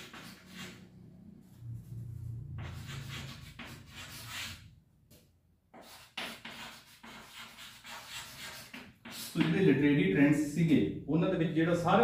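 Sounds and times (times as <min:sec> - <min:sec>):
chalk scratching on chalkboard: 0:00.0 - 0:00.9, 0:02.6 - 0:04.7, 0:05.7 - 0:09.6
low hum: 0:00.8 - 0:03.3.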